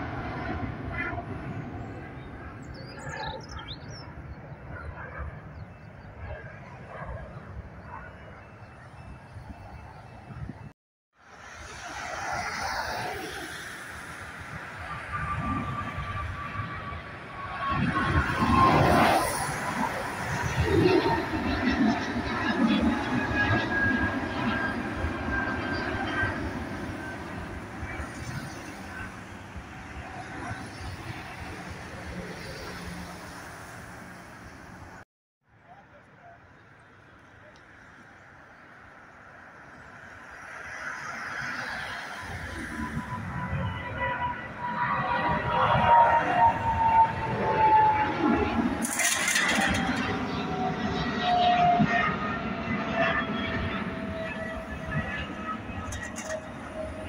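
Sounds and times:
jet engines rumbling: 0.0 - 35.0, 36.6 - 57.0
bird chirping: 2.6 - 4.9.

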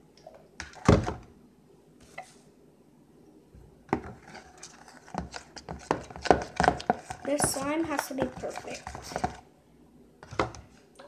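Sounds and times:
slime stirred in plastic bowl: 4.0 - 9.5.

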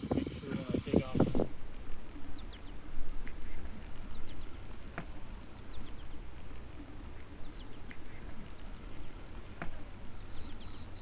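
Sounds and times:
steady low rumble: 0.0 - 11.0
high falling bird chirps: 10.2 - 11.0.

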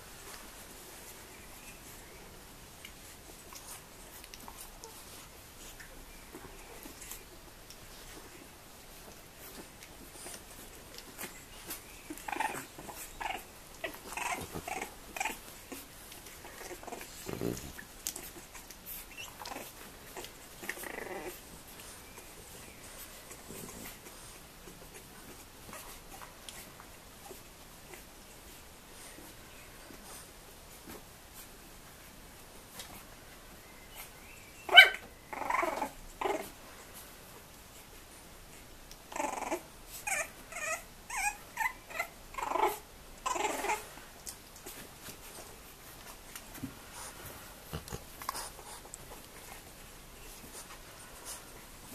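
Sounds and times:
paws scuffling on a blanket: 0.0 - 34.2, 35.3 - 51.9
puppies whimpering and squeaking: 7.9 - 28.1, 33.9 - 36.6, 38.5 - 43.9
puppies yapping: 11.1 - 21.4, 34.0 - 36.5
high puppy yelp: 34.0 - 36.5, 39.2 - 43.8.

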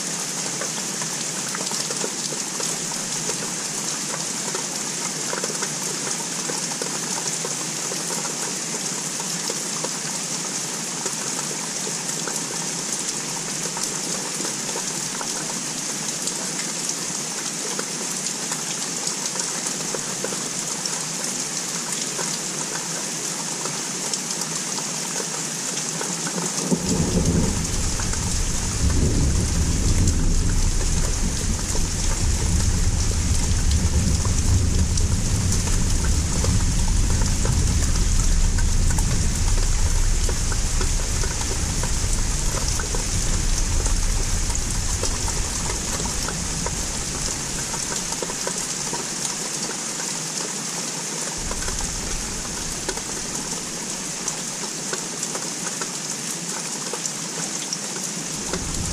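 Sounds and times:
rain pattering: 0.0 - 58.9
distant thunder rumble: 26.7 - 48.7, 51.4 - 54.4, 58.4 - 58.9.

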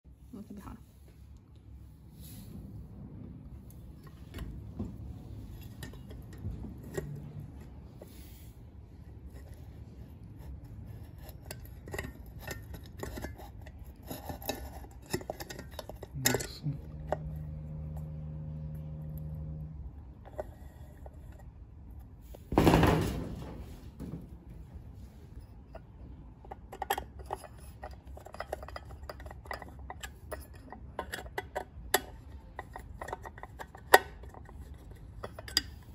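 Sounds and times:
small metallic clicks and scrapes: 5.2 - 8.5, 9.1 - 22.4, 25.4 - 35.9.

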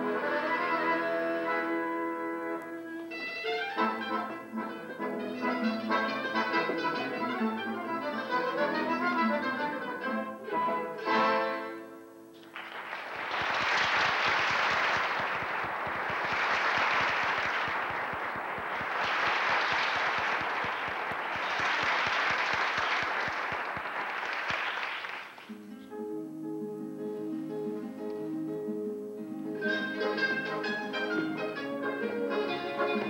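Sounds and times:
audience applauding: 12.4 - 25.5.

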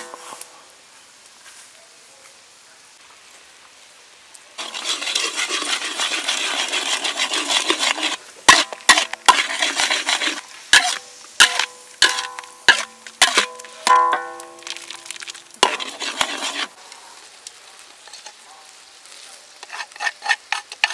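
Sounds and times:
spatula scraping wok: 4.6 - 16.8, 19.6 - 20.9
spatula clanking against wok: 10.7 - 14.9.

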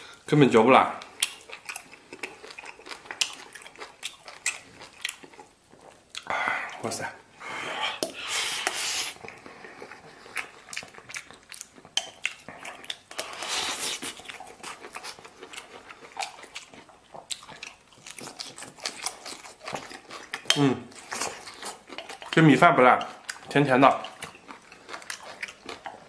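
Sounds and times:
man chewing and smacking: 1.0 - 6.8, 8.0 - 26.0.

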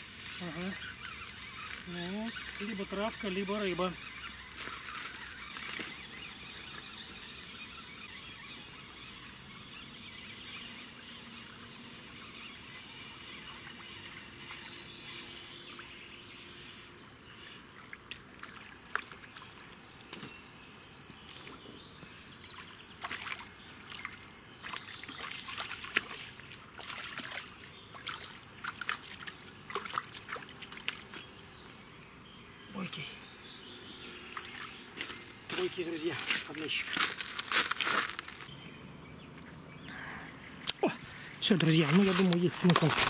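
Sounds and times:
fish splashing in water: 4.3 - 6.1, 17.7 - 19.8, 22.5 - 31.2.

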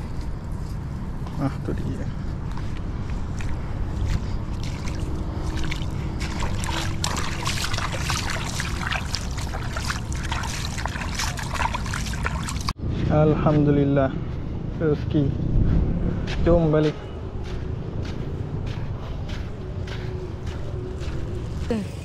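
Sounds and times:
water splashing and sloshing: 3.1 - 12.8.

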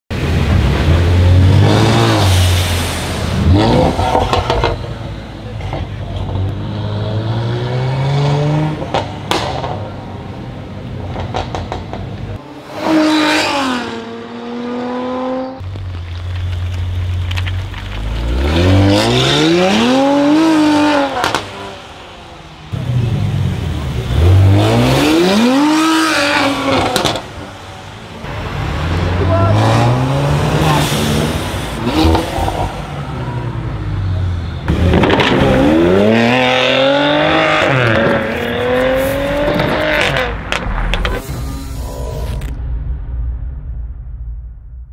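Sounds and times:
car engine idling and revving: 0.1 - 42.8
exhaust pops and crackles: 11.1 - 12.4, 15.6 - 19.8, 20.4 - 21.6, 26.7 - 27.5, 34.7 - 35.6.

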